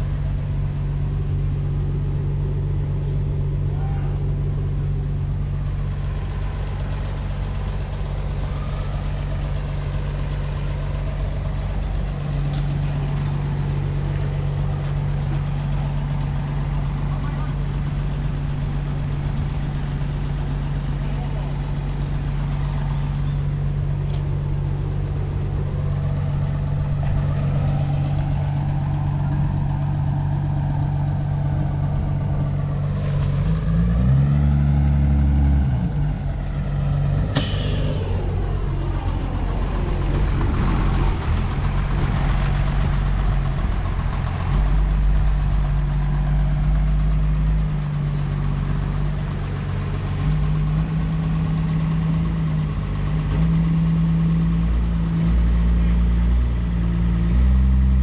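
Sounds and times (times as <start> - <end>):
truck engine idling: 0.0 - 34.1, 35.9 - 58.0
sharp click: 37.3 - 38.5.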